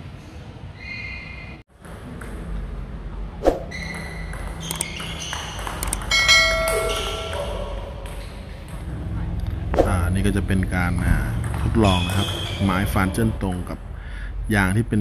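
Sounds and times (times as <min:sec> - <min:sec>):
table tennis ball hitting bats: 0:03.5 - 0:08.9.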